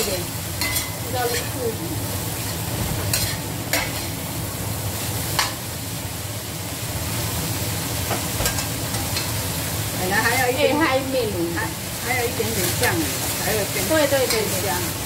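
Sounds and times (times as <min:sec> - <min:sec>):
vegetables sizzling in a wok: 0:00.0 - 0:15.0
metal spatula scraping pan: 0:02.4 - 0:04.2.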